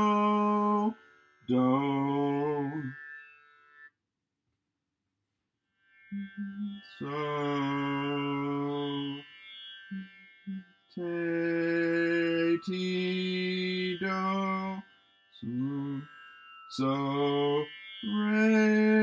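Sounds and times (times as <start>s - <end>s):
man singing held notes: 0.0s - 0.9s, 1.5s - 2.9s.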